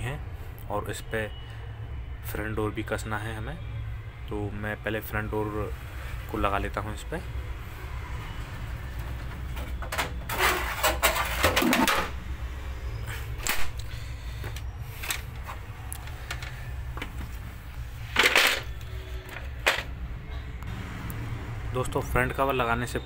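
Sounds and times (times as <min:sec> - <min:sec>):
plastic and metal parts knocking: 0:09.0 - 0:12.1
scraping rustle: 0:10.3 - 0:11.9.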